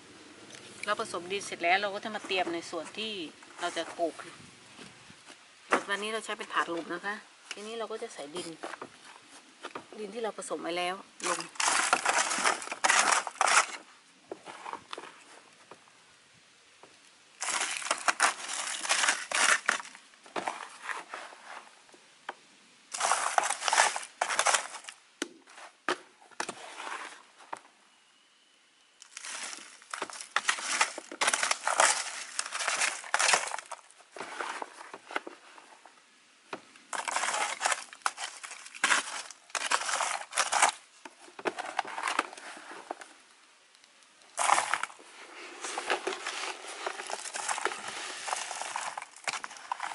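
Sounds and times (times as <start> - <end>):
trowel scraping soil on plastic tray: 11.2 - 15.1, 26.4 - 27.3, 29.2 - 35.7, 44.4 - 49.9.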